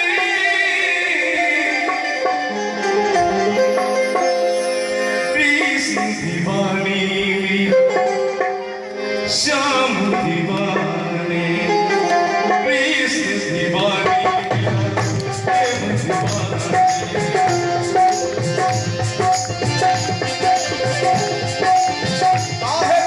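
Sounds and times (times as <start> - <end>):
harmoniums playing chords: 0.0 - 23.0
hand-drum rhythm: 13.6 - 23.0.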